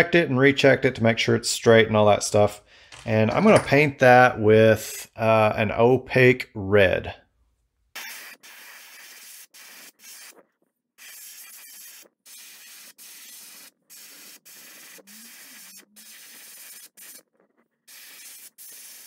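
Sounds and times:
airbrush spraying in hissing bursts: 0:08.0 - 0:10.4, 0:11.0 - 0:17.2, 0:17.9 - 0:19.0.

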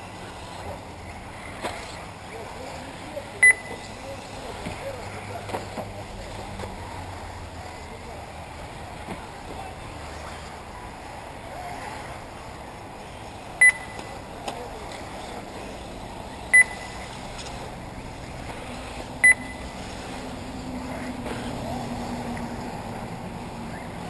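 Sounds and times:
background noise: 0:00.0 - 0:24.0
high electronic beeps: 0:03.4 - 0:03.8, 0:13.6 - 0:14.1, 0:16.5 - 0:17.1, 0:19.2 - 0:19.8.

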